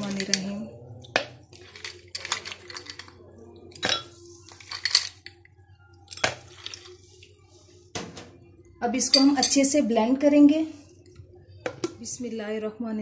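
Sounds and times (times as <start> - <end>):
ice cubes clinking into glass jar: 0.0 - 0.5, 1.2 - 5.4, 6.1 - 7.0.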